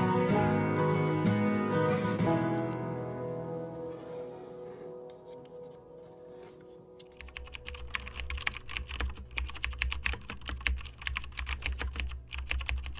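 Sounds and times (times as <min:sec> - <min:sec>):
guitar song: 0:00.0 - 0:05.6
fast typing on laptop keyboard: 0:07.0 - 0:12.9.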